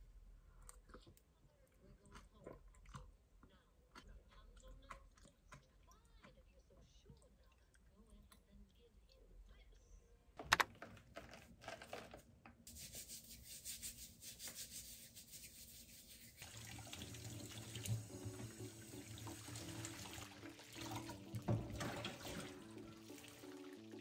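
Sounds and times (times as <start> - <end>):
lemons rubbed under water: 12.7 - 16.4
tap water running into a sink: 16.4 - 24.0.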